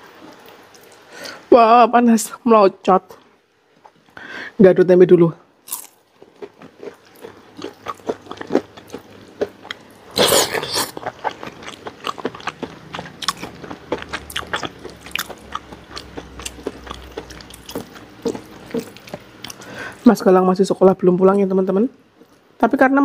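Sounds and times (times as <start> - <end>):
chewing and crunching food: 5.6 - 20.1.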